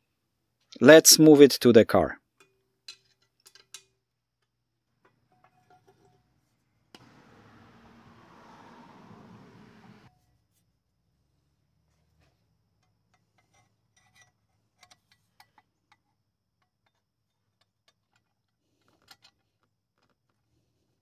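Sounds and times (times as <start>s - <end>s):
faint metallic clicks and clinks: 2.4s - 6.4s, 12.0s - 20.4s.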